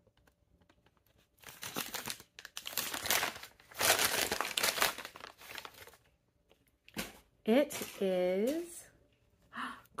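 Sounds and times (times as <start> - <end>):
paper bag crinkling: 0.8 - 6.1.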